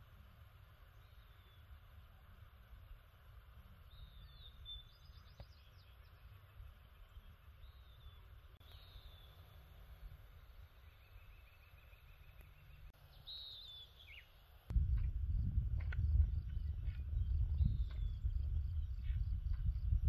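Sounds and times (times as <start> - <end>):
low background rumble: 0.0 - 20.0
bird chirps and whistles: 3.9 - 5.9, 10.9 - 14.3.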